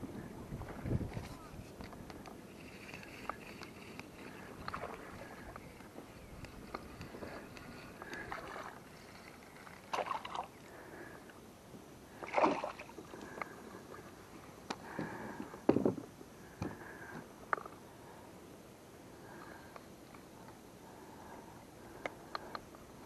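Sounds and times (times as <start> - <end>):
fish splashing: 7.3 - 10.6, 12.2 - 13.2.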